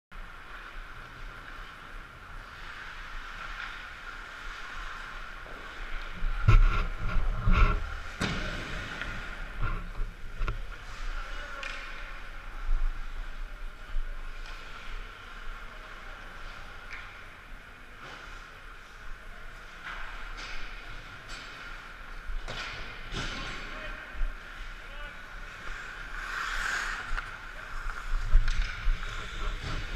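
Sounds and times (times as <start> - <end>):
skates scraping on ice: 0.2 - 17.2, 18.0 - 29.9.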